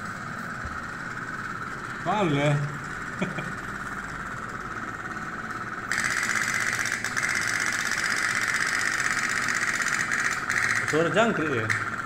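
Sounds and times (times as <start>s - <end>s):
toy boat engine puttering: 5.9s - 12.0s.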